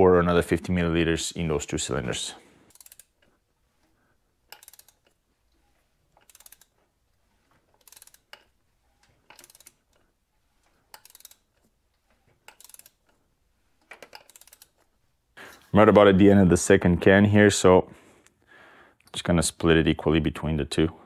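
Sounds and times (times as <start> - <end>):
socket ratchet clicking: 2.7 - 3.3, 4.5 - 5.2, 6.2 - 6.8, 7.8 - 8.5, 9.3 - 10.0, 10.9 - 11.5, 12.4 - 13.2, 13.8 - 14.8.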